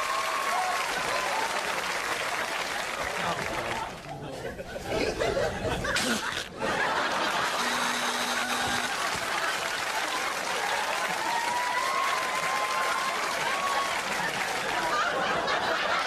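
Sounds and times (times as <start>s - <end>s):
audience applauding: 0.0s - 4.1s, 6.9s - 16.0s
audience laughing: 3.0s - 11.5s, 13.0s - 16.0s.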